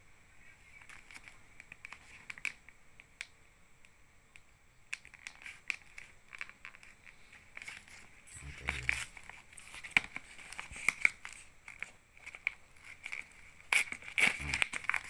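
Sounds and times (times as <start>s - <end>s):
tape and paper crackling: 0.6s - 3.3s, 4.3s - 15.0s
blade cutting packing tape: 13.1s - 15.0s.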